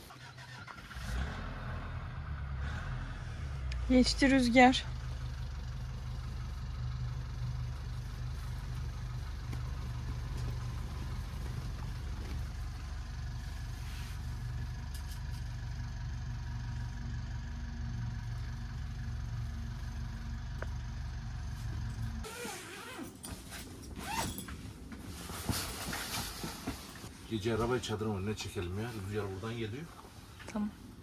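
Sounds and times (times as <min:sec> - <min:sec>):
low motor hum: 0:01.0 - 0:23.0.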